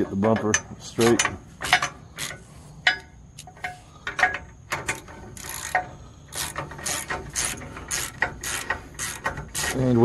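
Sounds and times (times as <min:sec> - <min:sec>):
socket ratchet clicking: 0:04.2 - 0:09.9.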